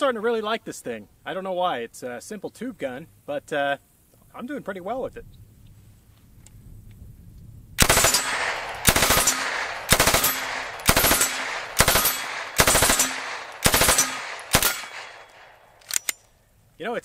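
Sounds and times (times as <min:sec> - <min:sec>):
submachine gun firing bursts: 0:07.8 - 0:16.0.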